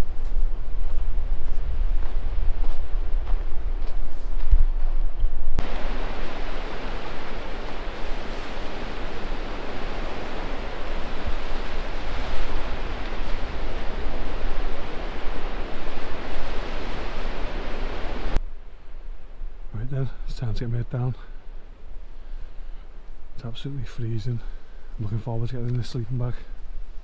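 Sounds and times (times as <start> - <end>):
wind: 0.0 - 27.0
sea surf: 5.6 - 18.4.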